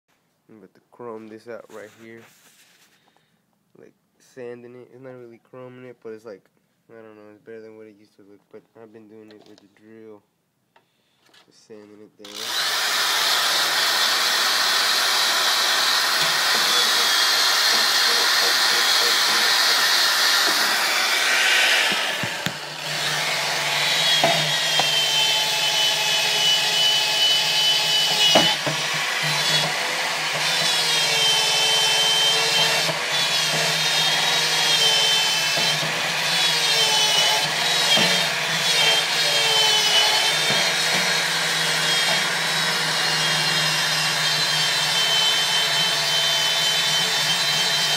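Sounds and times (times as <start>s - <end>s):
drill motor whine: 12.2s - 47.9s
drill sander scrubbing metal: 12.2s - 47.9s.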